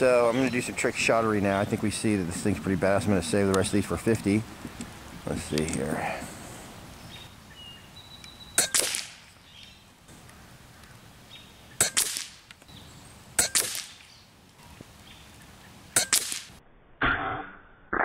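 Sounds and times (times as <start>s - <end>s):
air rifle shots: 8.6s - 9.3s, 11.8s - 12.5s, 13.4s - 14.1s, 16.0s - 16.6s.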